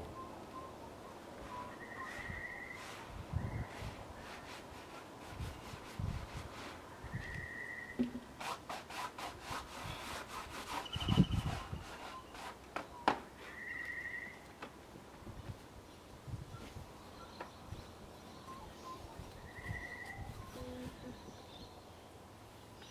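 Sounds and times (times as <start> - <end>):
gloved hand scraping sawdust: 1.5 - 13.6
dull thump of wood slab: 8.0 - 8.3.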